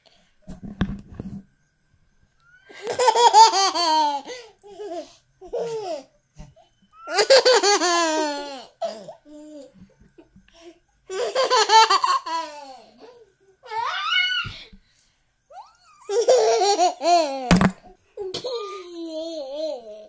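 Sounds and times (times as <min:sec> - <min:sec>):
young child giggling: 0:18.2 - 0:20.0.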